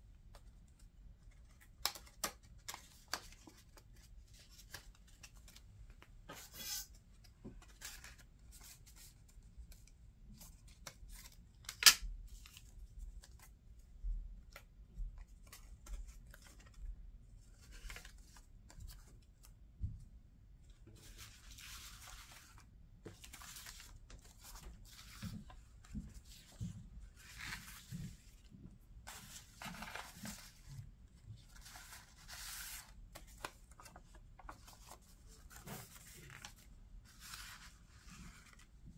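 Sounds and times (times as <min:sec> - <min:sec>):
paper rustling and tapping: 0:00.2 - 0:06.5, 0:21.0 - 0:38.8.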